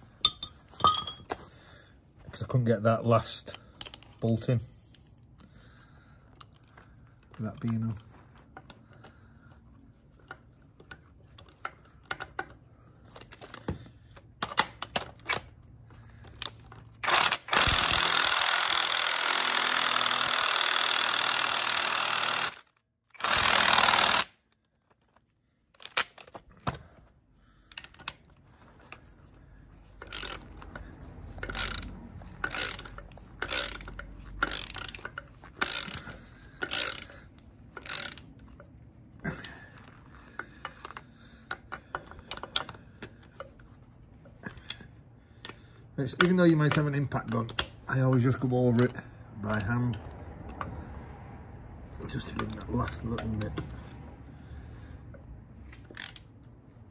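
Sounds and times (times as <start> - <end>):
impact wrench hammering: 0.2 - 1.2, 23.2 - 24.3
hand ratchet clicking: 16.2 - 24.4, 30.0 - 38.7, 55.7 - 56.4.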